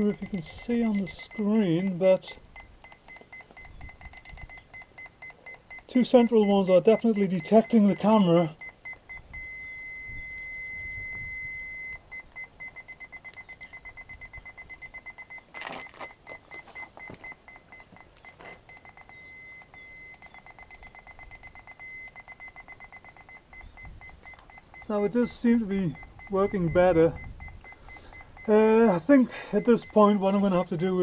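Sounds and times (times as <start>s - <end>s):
parking sensor warning buzzer: 0.0s - 31.0s
handling knocks and rustles: 15.5s - 19.0s.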